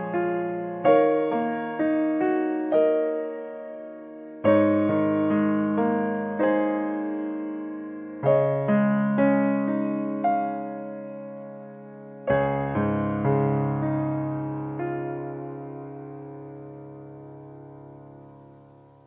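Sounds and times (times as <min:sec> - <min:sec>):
piano chords: 0:00.0 - 0:19.0.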